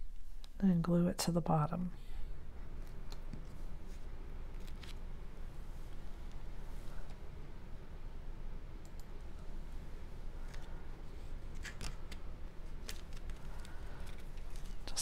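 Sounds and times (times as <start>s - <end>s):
low steady hum: 0.0s - 15.0s
cardstock clicks and crinkles: 11.5s - 15.0s.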